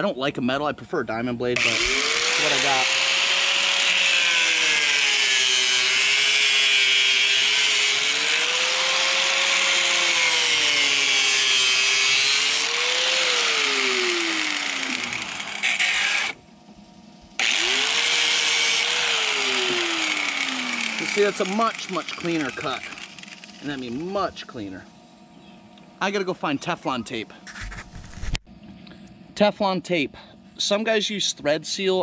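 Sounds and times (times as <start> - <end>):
angle grinder cutting plastic pipe: 1.6 - 16.4, 17.4 - 24.0.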